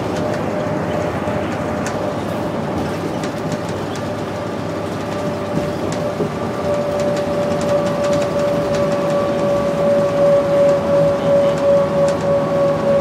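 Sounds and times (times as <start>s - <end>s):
bus engine rumble: 0.0s - 13.0s
road noise: 0.0s - 13.0s
transmission whine: 4.8s - 13.0s.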